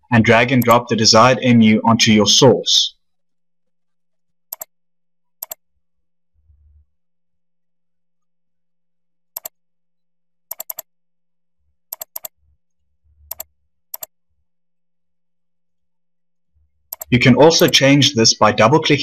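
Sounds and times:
computer mouse clicking: 0:04.5 - 0:04.7, 0:09.4 - 0:09.6, 0:10.5 - 0:10.9, 0:11.9 - 0:12.4, 0:13.3 - 0:14.1, 0:16.9 - 0:17.8.

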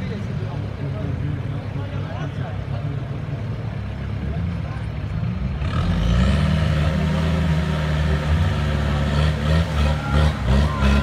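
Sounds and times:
buggy engine revving under load: 0:05.2 - 0:11.0.

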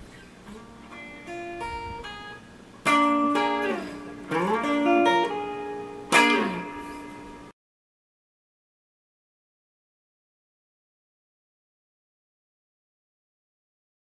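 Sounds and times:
electric guitar playing: 0:00.0 - 0:07.5.

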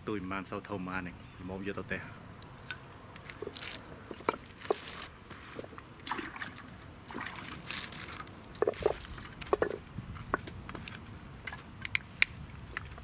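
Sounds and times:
water sloshing and splashing: 0:02.7 - 0:11.7.

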